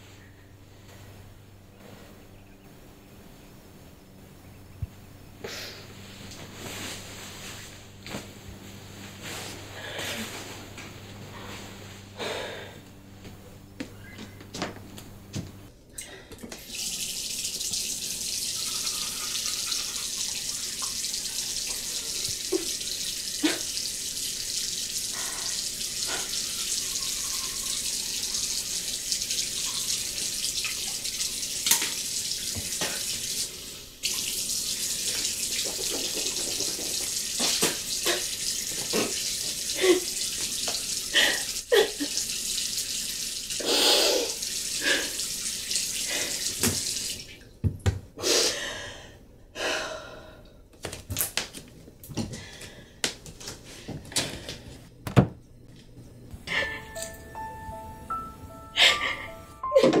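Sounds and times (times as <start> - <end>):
sink tap running: 16.4 - 48.0.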